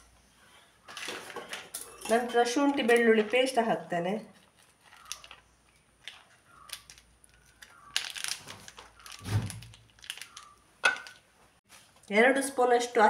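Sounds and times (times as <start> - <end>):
plastic sachet crinkling: 4.3 - 11.3.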